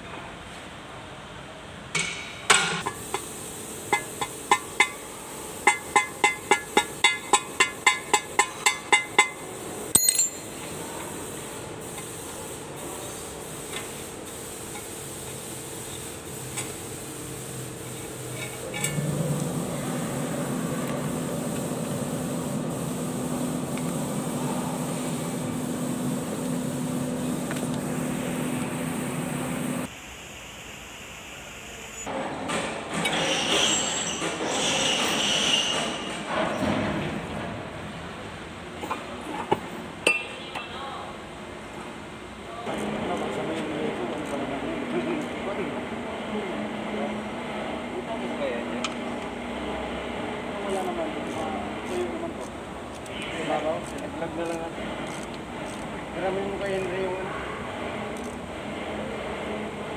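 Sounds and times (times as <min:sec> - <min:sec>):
hammer striking metal: 0:05.7 - 0:10.6.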